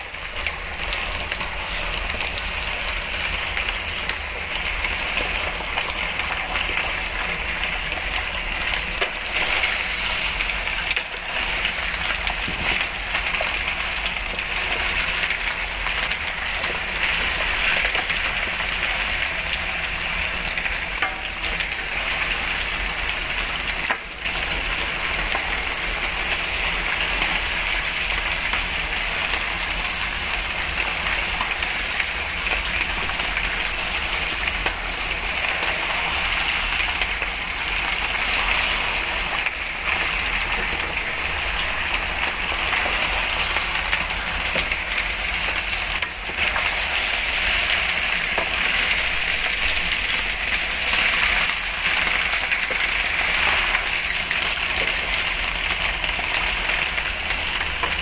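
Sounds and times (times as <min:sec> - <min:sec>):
vegetables sizzling in hot oil: 0:00.0 - 0:58.0.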